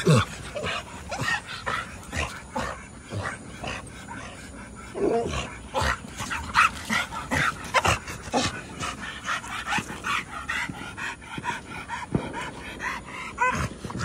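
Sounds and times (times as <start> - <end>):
dog panting: 0.0 - 14.0
dog whining and yipping: 13.2 - 14.0.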